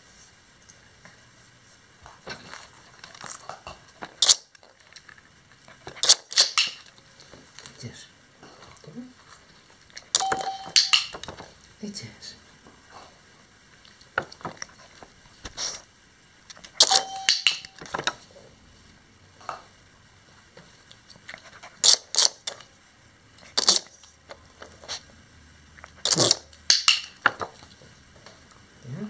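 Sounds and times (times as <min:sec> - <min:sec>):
toy steady tone: 0:10.2 - 0:11.2, 0:16.8 - 0:17.9.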